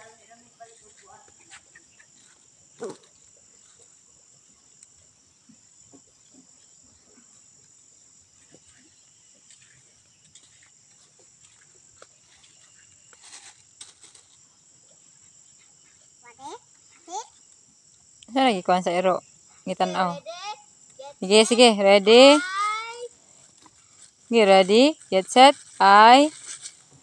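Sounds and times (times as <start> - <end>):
insect chorus drone: 0.0 - 27.0
small rustles and knocks: 5.5 - 14.9, 23.3 - 24.3, 25.0 - 27.0.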